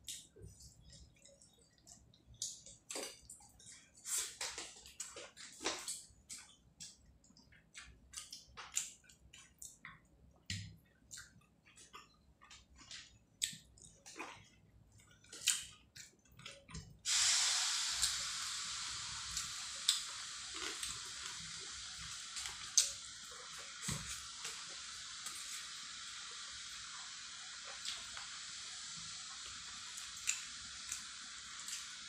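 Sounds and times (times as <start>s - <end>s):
steady hiss: 17.0s - 32.0s.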